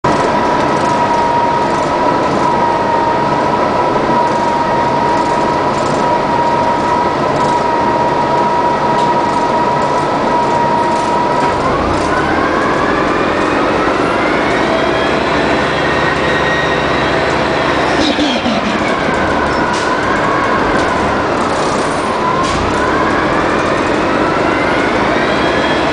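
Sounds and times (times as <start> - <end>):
bus engine whine: 0.0 - 25.9.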